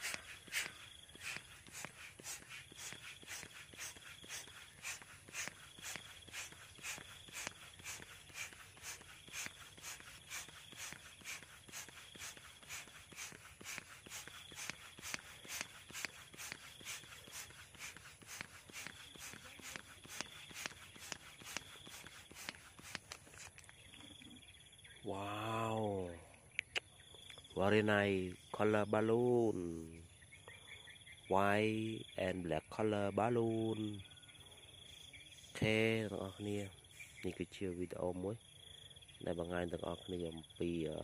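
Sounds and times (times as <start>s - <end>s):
hand pump puffing air: 0.0s - 23.6s.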